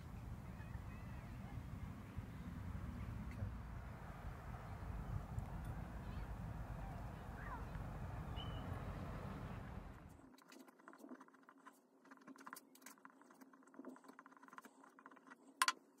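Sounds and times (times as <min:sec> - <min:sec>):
low outdoor rumble: 0:00.0 - 0:10.3.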